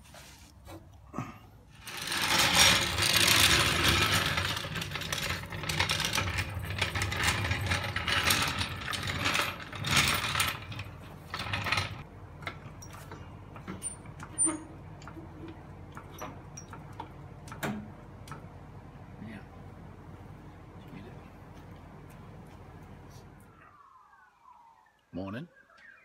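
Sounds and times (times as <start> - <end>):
floor jack clanking on concrete: 1.8 - 17.9.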